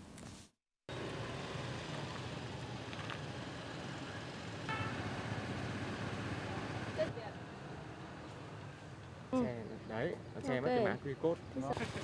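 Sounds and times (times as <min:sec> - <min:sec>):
street traffic noise: 0:00.9 - 0:12.0.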